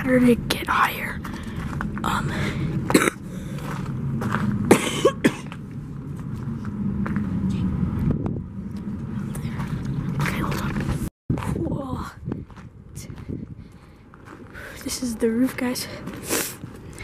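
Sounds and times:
steady low hum: 0.0s - 17.0s
person coughing: 2.9s - 3.2s, 4.7s - 5.5s.

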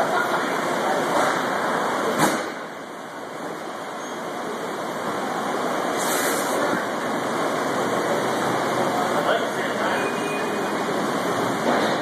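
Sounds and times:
machinery and ventilation noise: 0.0s - 12.0s
brief hiss: 6.0s - 6.7s.

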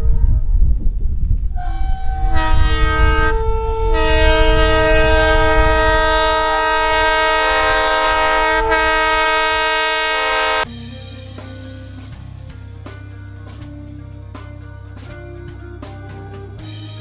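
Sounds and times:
low rumble: 0.0s - 9.8s
locomotive air horn chord: 1.5s - 10.7s.

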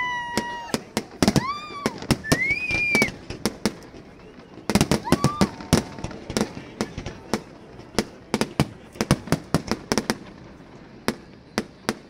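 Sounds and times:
fireworks bangs and crackles: 0.0s - 12.0s
high whistling firework tones: 0.0s - 12.0s.

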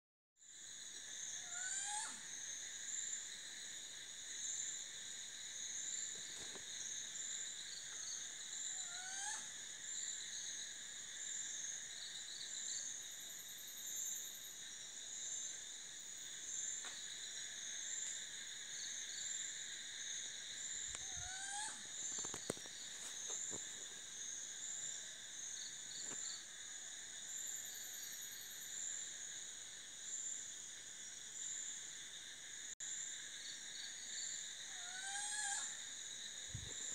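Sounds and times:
night insects trilling: 0.4s - 36.9s
flying squirrel upward-sliding call: 21.0s - 21.8s.

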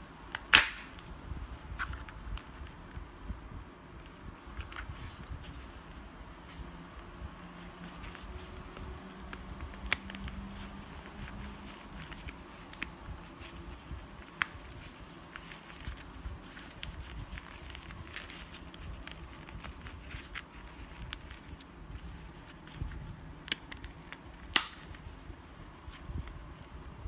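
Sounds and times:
sharp plastic snap: 0.3s - 1.0s, 24.5s - 25.0s.

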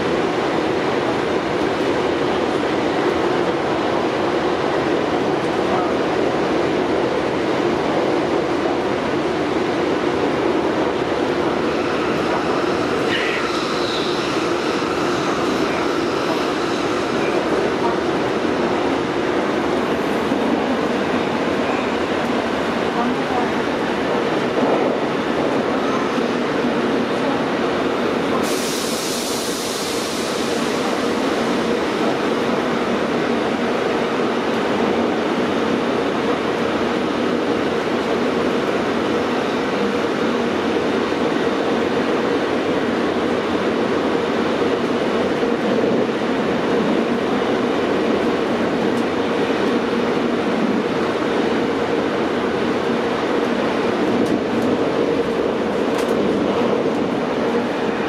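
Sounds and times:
train rail running noise: 0.0s - 58.0s
high hiss: 28.4s - 31.8s.

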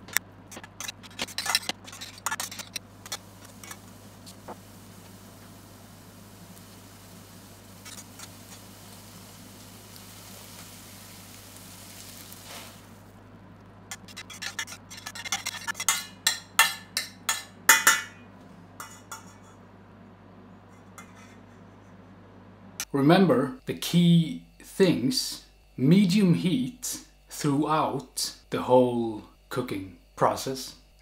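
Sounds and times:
metal spoon scraping a frying pan: 0.1s - 3.8s, 13.9s - 18.0s, 18.8s - 19.6s, 20.7s - 21.8s
onions sizzling in a pan: 2.9s - 13.2s.

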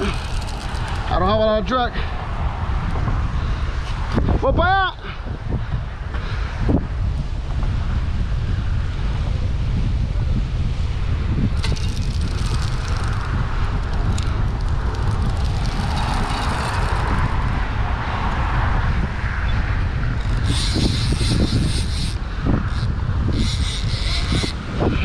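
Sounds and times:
fishing reel whirring: 0.0s - 1.7s, 11.6s - 17.7s, 20.1s - 24.7s
wind buffeting microphone: 0.0s - 25.0s.

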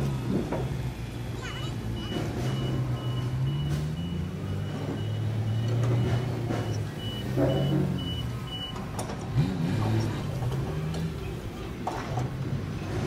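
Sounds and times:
truck engine running: 0.0s - 13.0s
backup alarm beeping: 1.5s - 9.0s.

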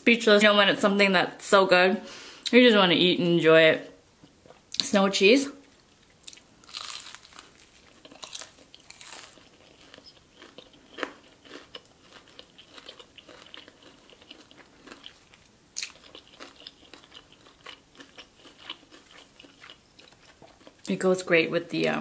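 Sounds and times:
crunching and chewing fried chicken: 6.0s - 20.9s.

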